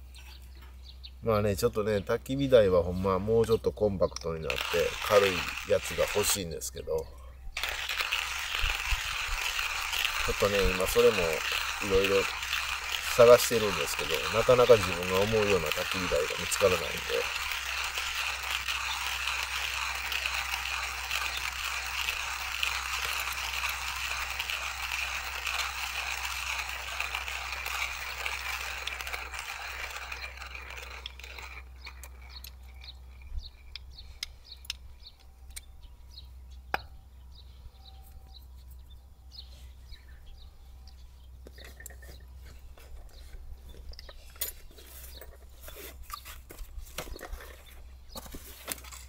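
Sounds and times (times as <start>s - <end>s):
hand coffee grinder grinding: 4.3s - 6.7s, 7.6s - 34.1s.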